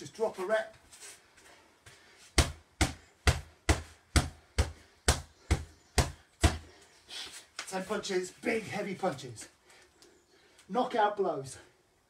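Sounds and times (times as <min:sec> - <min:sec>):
boxing gloves hitting punching bag: 0:02.4 - 0:06.7.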